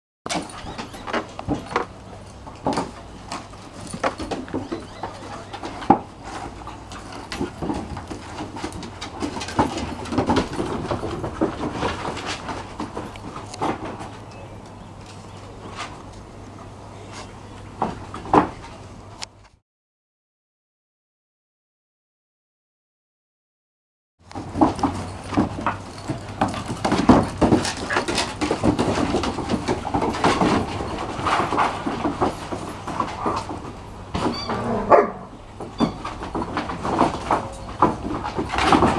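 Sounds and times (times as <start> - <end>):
dog claws clicking on wooden boards: 0.3 - 14.3, 24.3 - 34.4, 35.6 - 38.9.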